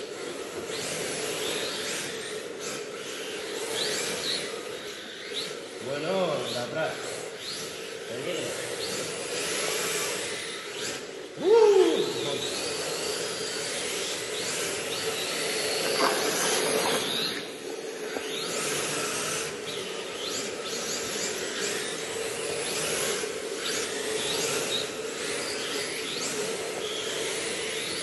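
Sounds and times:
electric motors whining: 0.0 - 28.0
tyres scraping and hissing: 14.7 - 19.6.

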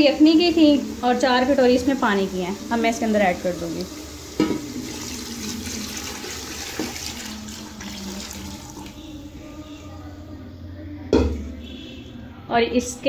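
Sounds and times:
liquid pouring and splashing into pot: 3.8 - 9.1.

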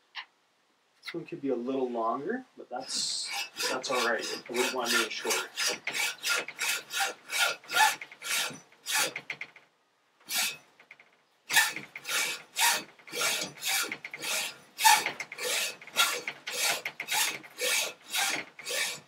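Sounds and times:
hacksaw cutting metal: 2.8 - 9.5, 10.2 - 10.6, 11.5 - 19.0.

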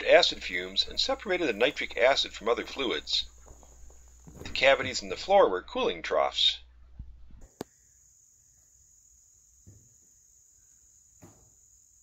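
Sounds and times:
high-pitched insect chorus: 7.5 - 12.0.

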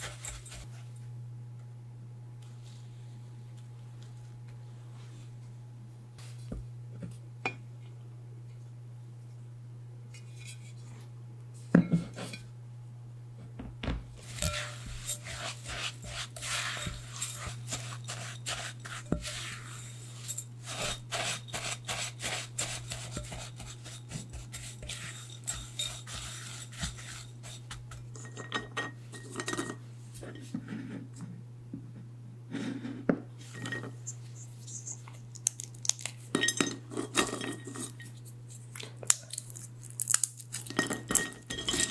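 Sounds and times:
spatula scraping glass bowl: 0.0 - 0.7, 14.2 - 29.8, 41.1 - 41.9
low steady hum: 0.0 - 41.9.

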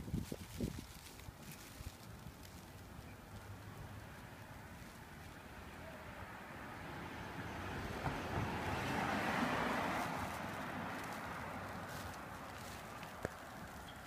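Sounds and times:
car passing: 3.3 - 14.0.

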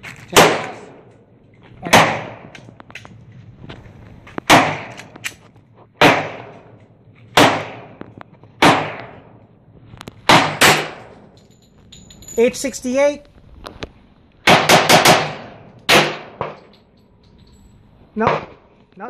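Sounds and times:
pistol shots echoing: 0.3 - 1.1, 4.5 - 5.2, 6.0 - 6.7, 7.4 - 8.0, 8.6 - 9.3, 10.2 - 11.2, 14.4 - 16.6.

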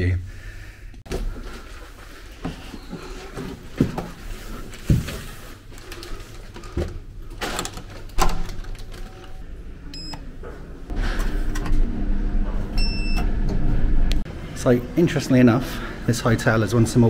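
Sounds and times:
steady low hum: 9.3 - 17.0
lift button beep: 9.9 - 10.3, 12.8 - 13.4.

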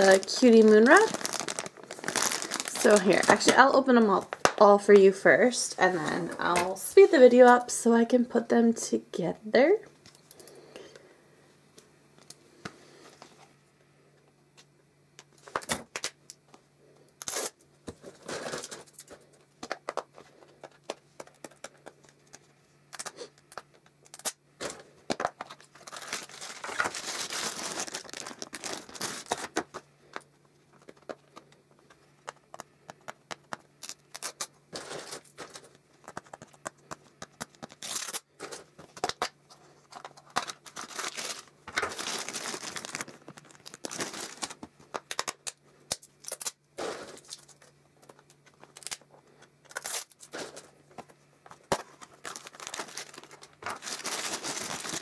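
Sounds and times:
wrapping crinkling and tearing: 0.0 - 4.6, 17.2 - 31.5, 32.4 - 50.8, 51.5 - 55.0.

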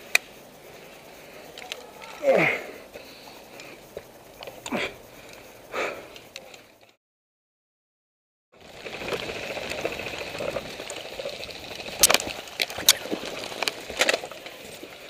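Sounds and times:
leaves and undergrowth rustling: 8.6 - 15.0
footsteps in woodland: 8.8 - 15.0.

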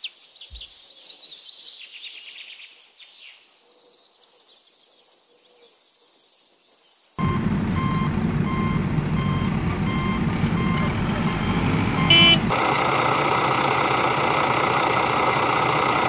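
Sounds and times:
reversing alarm beeping: 7.2 - 12.5
diesel engine rumbling: 7.2 - 16.0
vehicle horn blast: 10.8 - 12.6.

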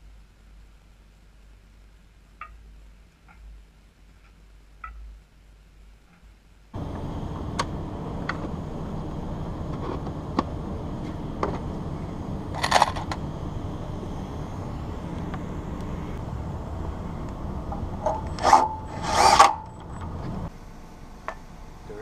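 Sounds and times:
steady low rushing noise: 6.8 - 22.0.

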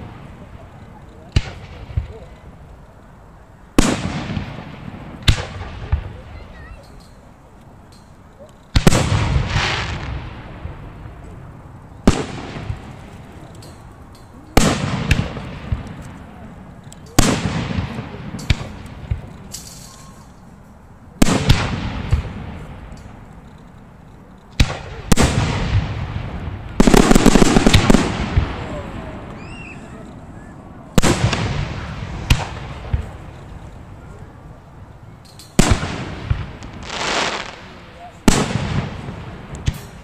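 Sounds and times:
firework crackling burst: 8.7 - 13.4, 24.6 - 30.3, 30.9 - 34.0, 35.5 - 40.0
firework shells bursting: 21.2 - 28.6, 35.2 - 40.0.

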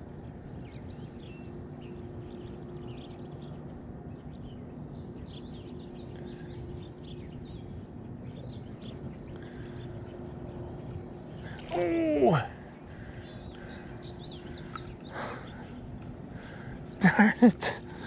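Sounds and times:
birds chirping and calling: 0.0 - 18.0
faint steady hum: 0.0 - 18.0.

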